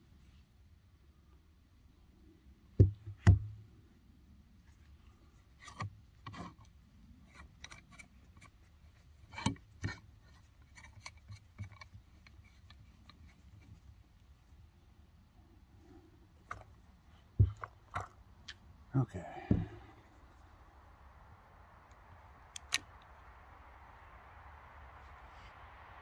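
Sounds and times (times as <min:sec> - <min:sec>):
heavy knocks of gun handling: 0:17.4 - 0:18.2.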